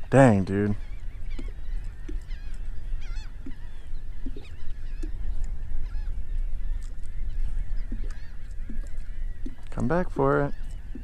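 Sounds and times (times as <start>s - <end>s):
birds calling: 0.0s - 11.0s
wind rumble on microphone: 0.0s - 11.0s.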